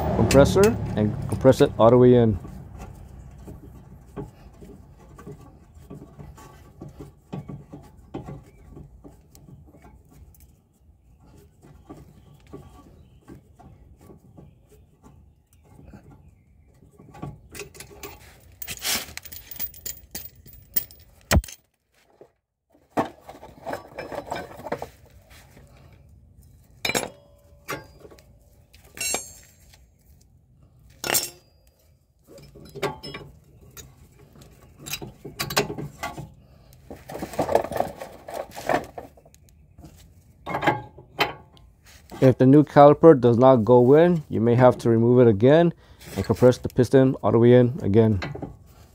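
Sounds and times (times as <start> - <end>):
metal tools clicking and clattering: 17.5 - 21.7, 28.9 - 29.7, 31.0 - 33.9.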